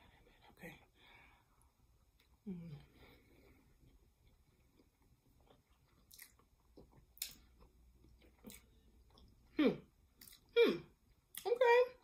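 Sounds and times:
person chewing with wet smacks: 0:03.8 - 0:11.5.

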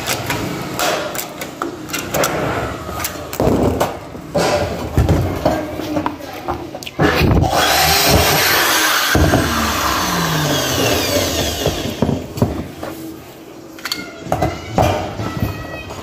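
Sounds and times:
power tool whirring: 0:07.4 - 0:12.2.

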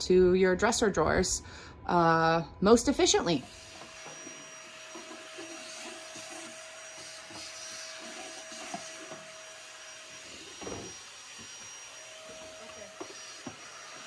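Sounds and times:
vacuum cleaner running: 0:02.8 - 0:14.0.

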